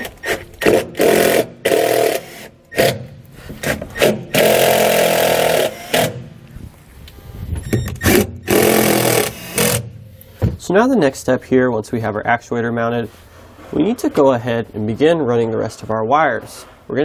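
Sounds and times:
cordless drill driving screws: 0.0 - 3.0, 3.6 - 6.3, 8.0 - 9.9.

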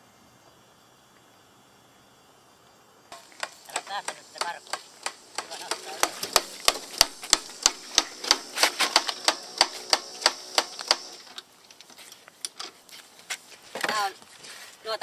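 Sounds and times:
sharp mechanical clicking: 3.1 - 11.5.

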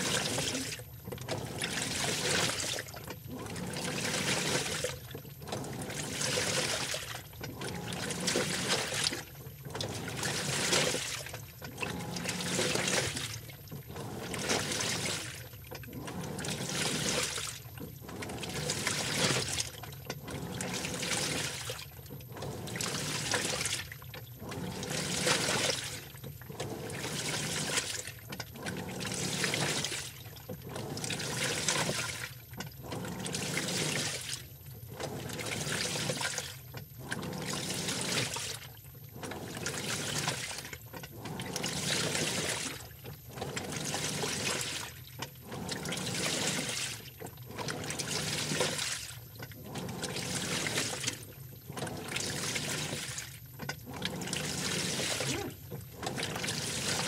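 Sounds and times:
water and clothes sloshing in drum: 0.0 - 57.0.

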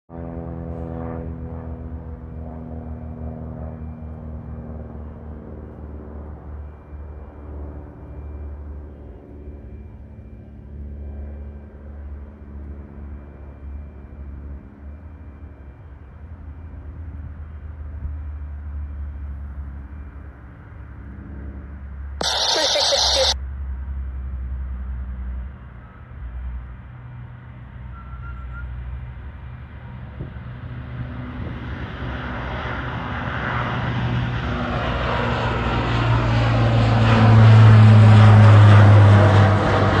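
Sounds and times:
turboprop aircraft engines drone: 0.1 - 40.0
brief loud burst of noise: 22.2 - 23.4.

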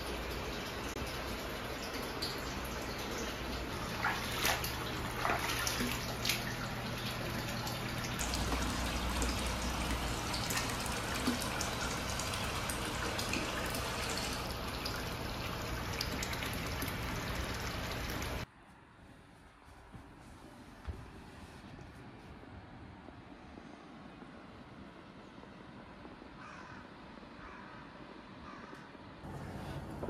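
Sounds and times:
water pouring into a bath: 0.0 - 18.5
water splashing: 0.6 - 18.4.

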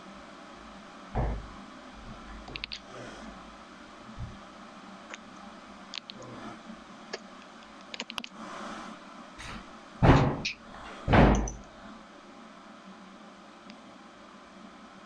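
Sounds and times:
dull thumps: 1.2 - 2.2.

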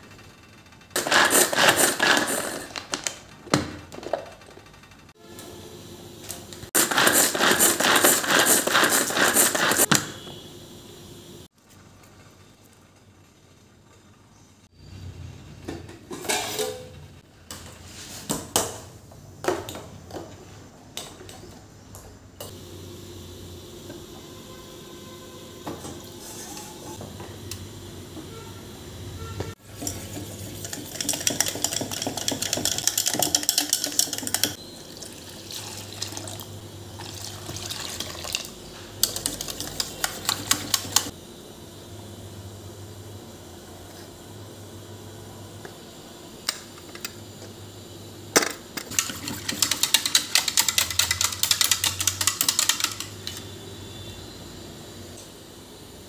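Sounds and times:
knocks and clatters in metal bowl: 29.8 - 34.6
whisk beating batter in metal bowl: 29.8 - 34.6, 39.0 - 41.1, 49.0 - 53.4.

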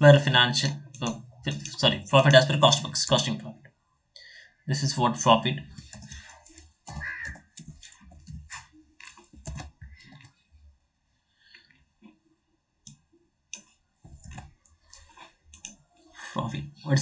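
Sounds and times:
keyboard keystroke clicks: 5.7 - 10.3.

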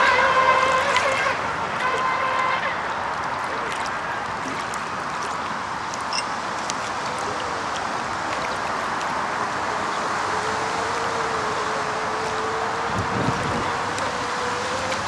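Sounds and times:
radio-controlled boat engines buzzing: 0.0 - 4.6, 9.3 - 15.0.

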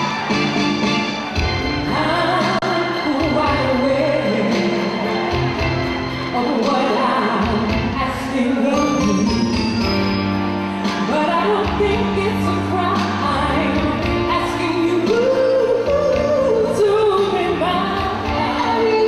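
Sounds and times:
soul music backing: 0.0 - 19.0
woman singing into a microphone: 1.9 - 5.2, 6.3 - 9.6, 11.0 - 19.0.

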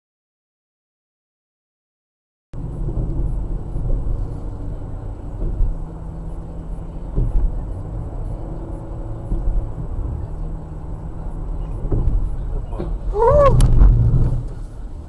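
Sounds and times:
car engine and road noise: 2.6 - 15.0.

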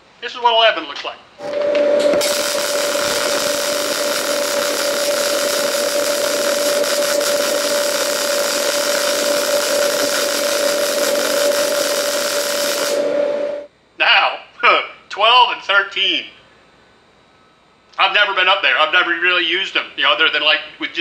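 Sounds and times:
welding arc hissing and humming: 1.4 - 13.7.

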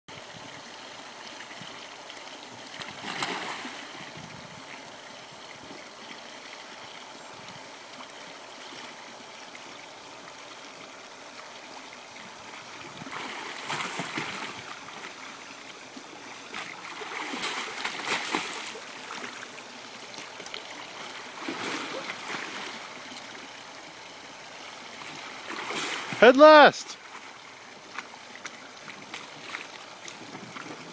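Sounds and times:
rushing water: 0.1 - 30.9
paddle churning water: 7.6 - 30.9.

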